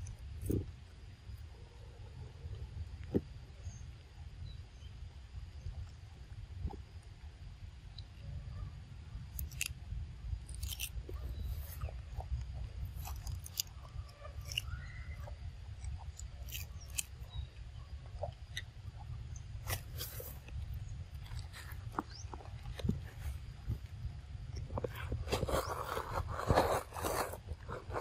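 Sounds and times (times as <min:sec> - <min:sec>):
monkey crunching leafy greens: 0:09.3 - 0:09.8, 0:10.5 - 0:17.4, 0:18.1 - 0:23.8.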